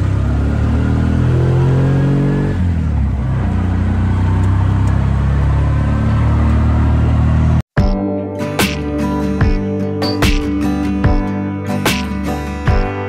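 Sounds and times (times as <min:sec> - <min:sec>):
auto-rickshaw engine running: 0:00.0 - 0:07.8.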